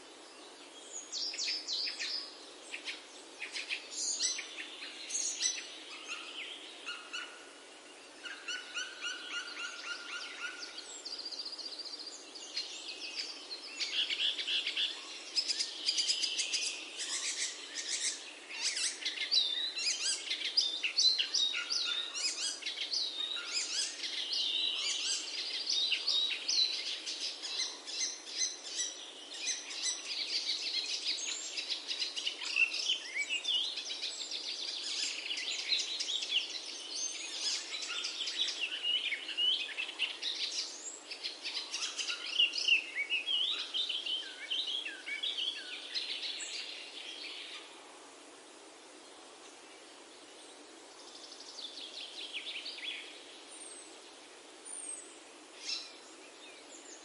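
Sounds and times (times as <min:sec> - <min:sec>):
small songbirds chirping: 0:00.0 - 0:57.0.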